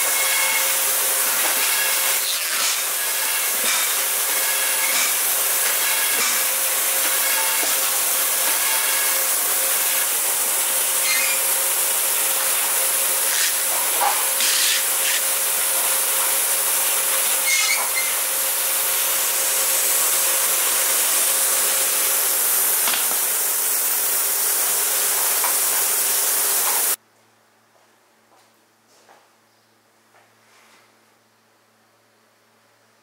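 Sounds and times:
machinery hissing: 0:00.0 - 0:27.0.

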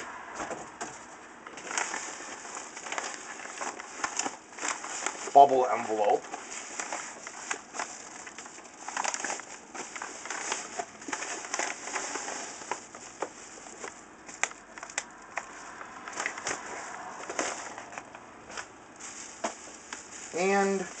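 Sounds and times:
paper and plastic wrapping crinkling: 0:00.7 - 0:21.0.

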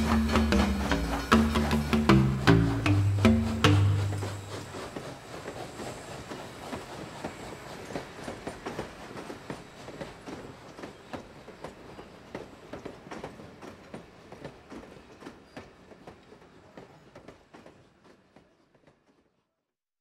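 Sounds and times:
hand percussion music: 0:00.0 - 0:04.7.

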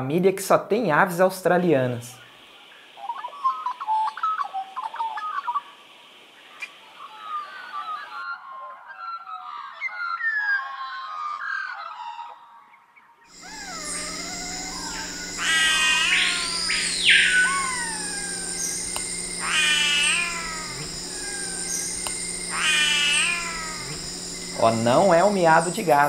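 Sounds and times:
bird mewing calls: 0:13.3 - 0:26.0
magpie warbling song: 0:13.3 - 0:26.0.

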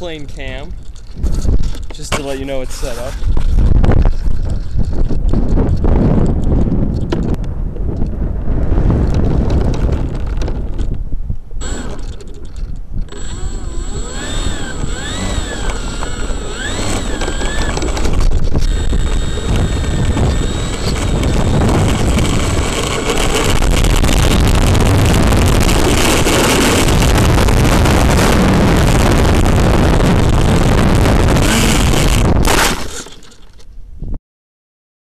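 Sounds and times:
wind on microphone: 0:00.0 - 0:32.9, 0:33.7 - 0:34.2
wheels rolling on asphalt: 0:00.0 - 0:33.7
electric motor whine: 0:11.6 - 0:12.2, 0:13.0 - 0:33.0
propeller rushing: 0:13.1 - 0:33.1.

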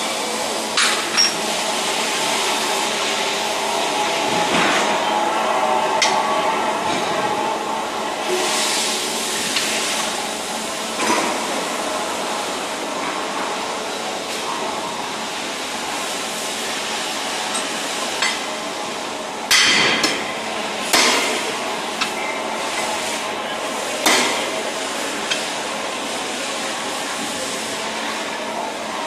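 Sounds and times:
workshop noise: 0:00.0 - 0:29.0
hammer striking steel: 0:24.0 - 0:24.5.

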